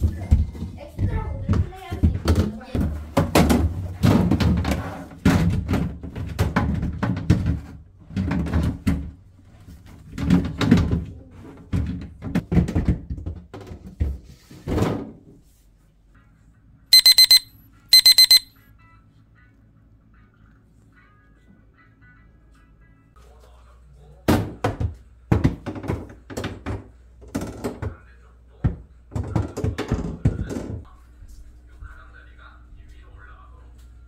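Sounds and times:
kitchen timer beeping: 17.0 - 18.5.

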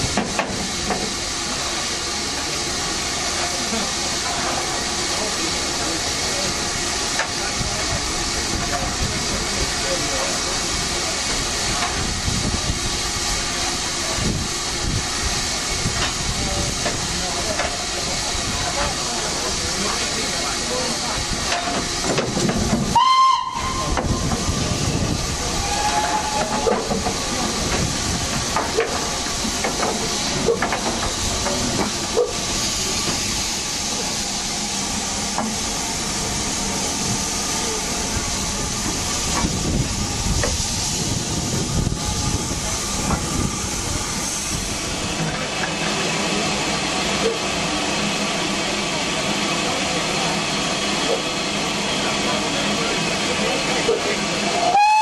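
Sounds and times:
steam hissing: 0.0 - 55.0
steam locomotive whistle: 22.9 - 24.0, 25.5 - 26.8, 54.5 - 55.0.

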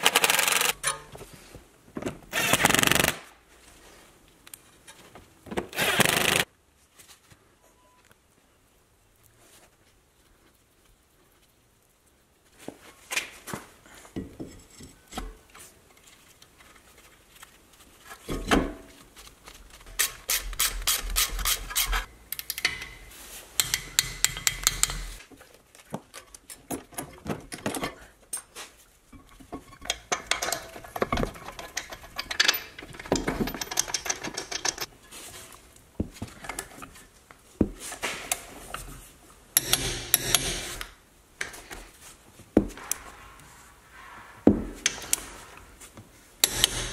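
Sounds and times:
metal parts clinking: 29.7 - 34.9.

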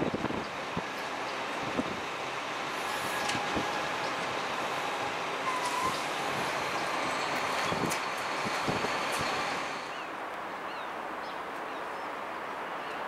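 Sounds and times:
wind buffeting microphone: 0.0 - 9.7
distant diesel train moving: 0.0 - 10.2.

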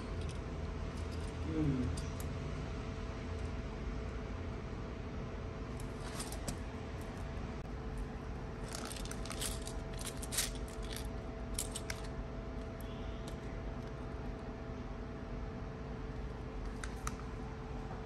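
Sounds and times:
faint steady hum: 0.0 - 18.0
small metal charms rattling in plastic box: 8.6 - 12.1.

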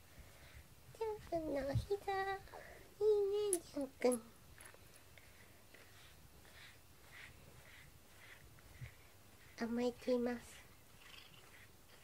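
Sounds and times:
brush strokes through fur: 4.6 - 12.0.

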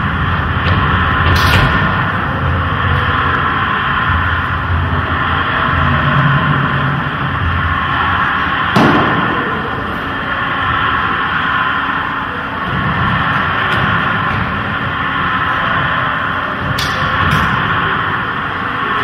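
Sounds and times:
electronic drone with low rumble: 0.0 - 19.0
sharp bang: 8.7 - 9.7.

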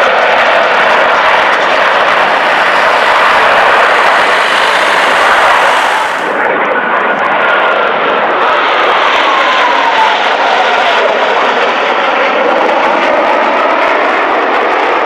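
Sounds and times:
faint whine falling in pitch: 0.0 - 7.1
jet engines roaring: 0.0 - 15.0.

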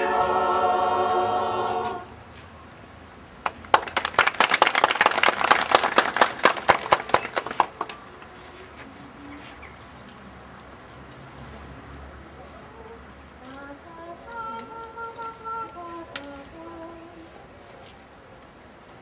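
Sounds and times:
small audience applauding: 3.4 - 8.0.

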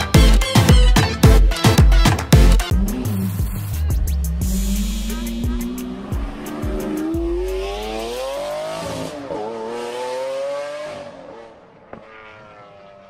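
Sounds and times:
car engine revving: 2.7 - 13.0.

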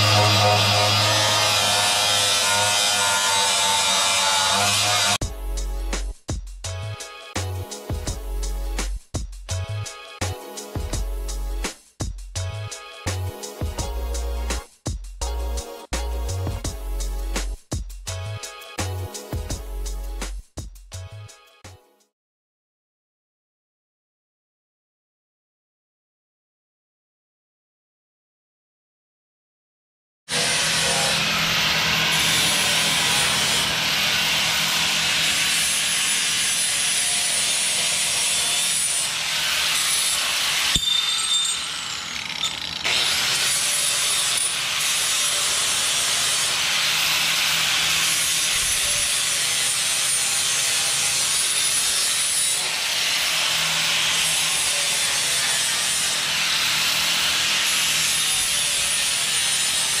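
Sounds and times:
angle grinder grinding steel: 0.0 - 5.2, 30.3 - 60.0.

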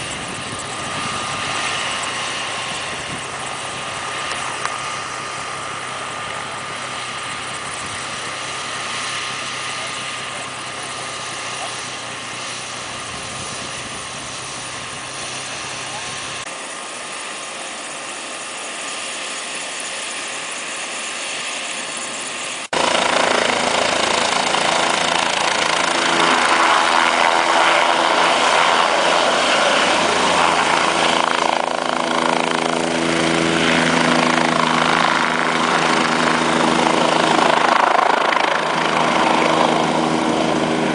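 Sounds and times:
helicopter turbine and rotor: 0.0 - 40.9.

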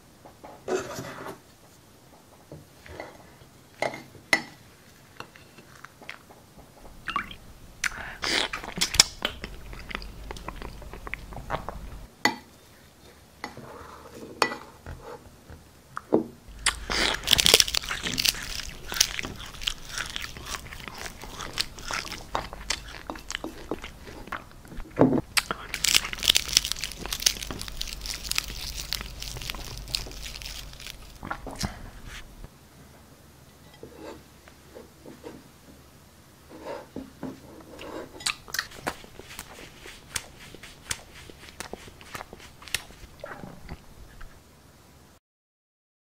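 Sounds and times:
wet squelches: 16.5 - 24.6, 38.3 - 43.4
paintbrush swishing through wet paint: 37.8 - 43.2.

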